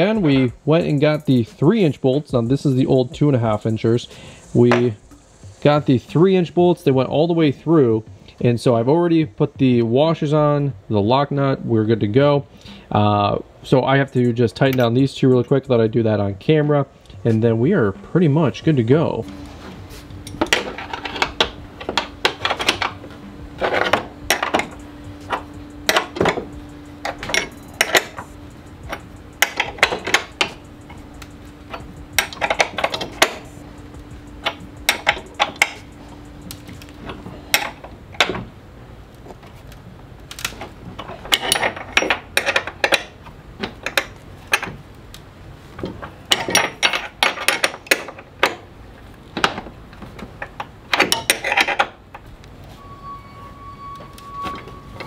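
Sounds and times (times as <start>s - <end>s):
low steady hum: 0.0s - 55.0s
wrench clinking on bolts: 23.6s - 38.4s, 41.0s - 44.8s, 46.3s - 48.7s, 50.4s - 52.0s.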